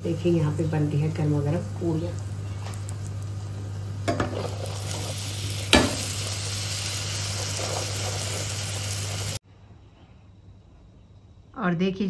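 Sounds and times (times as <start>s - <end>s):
bread sizzling in hot oil: 0.1s - 9.4s.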